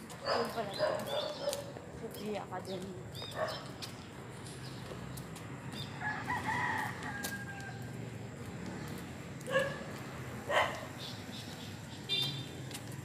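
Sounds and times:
dogs barking: 0.2s - 1.8s, 3.3s - 3.8s, 9.4s - 11.0s.

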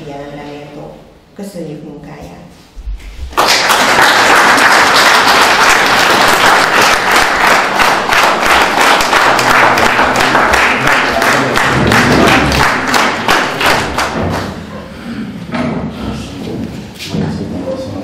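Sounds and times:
audience applauding: 3.3s - 14.6s.

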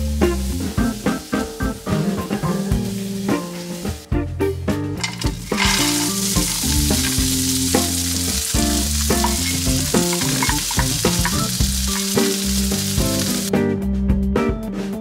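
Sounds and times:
peas sizzling in a frying pan: 0.0s - 4.1s, 5.0s - 13.5s
background music: 0.0s - 15.0s.

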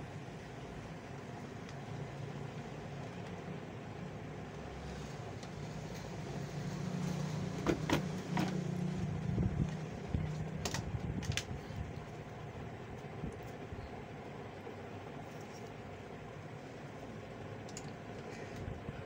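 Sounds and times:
low engine hum: 0.7s - 15.2s.

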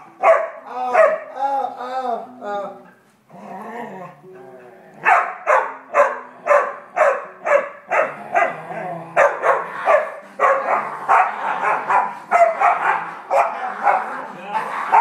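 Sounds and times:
small dog barking excitedly: 9.2s - 14.0s.

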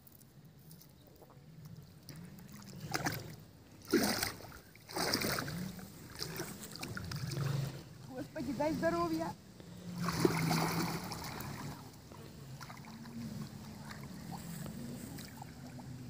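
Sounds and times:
water splashing from wading: 2.1s - 8.2s, 9.8s - 16.0s.

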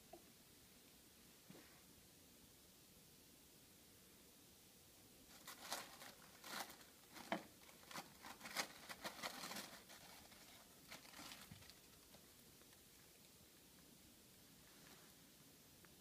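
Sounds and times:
plastic packing crinkling: 5.3s - 12.3s.

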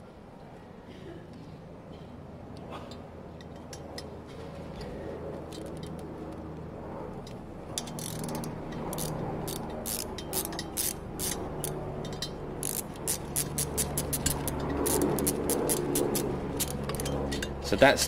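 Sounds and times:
hand ratchet clicking: 7.8s - 17.4s.

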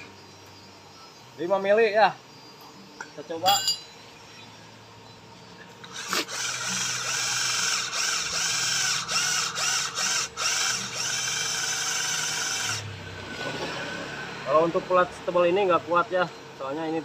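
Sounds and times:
cordless drill grinding steel plate: 5.8s - 12.8s.

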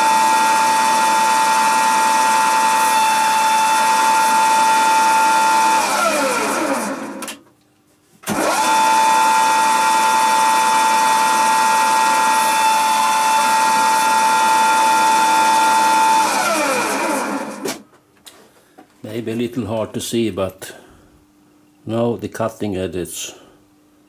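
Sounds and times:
grinder motor whining: 0.0s - 7.4s, 8.3s - 17.8s.

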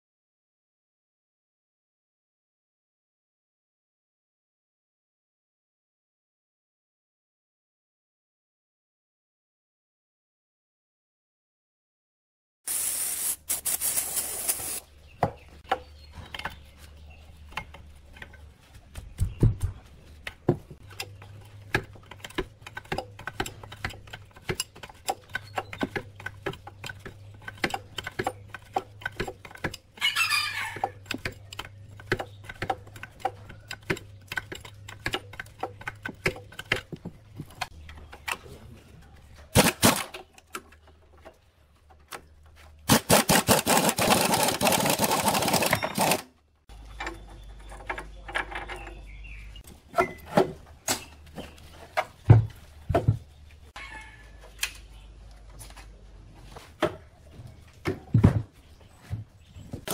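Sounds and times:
aerosol spray can hissing: 12.7s - 14.8s.

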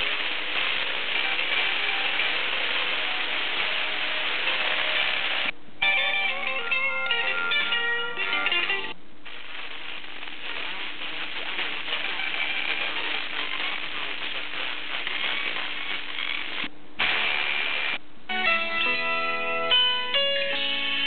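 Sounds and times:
music from radio station: 0.0s - 5.5s, 6.2s - 19.0s
radio static hiss: 0.0s - 5.6s, 8.9s - 18.0s
faint distant radio station: 0.0s - 21.0s.

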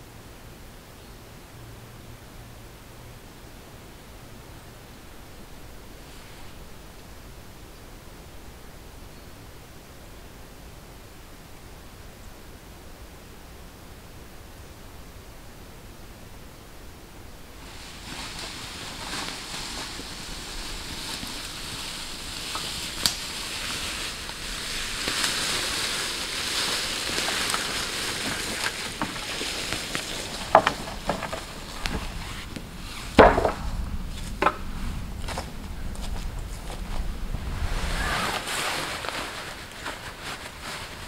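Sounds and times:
footsteps rustling through leaves: 17.4s - 41.0s
sticks knocking on ground: 28.2s - 32.0s, 33.2s - 34.6s.

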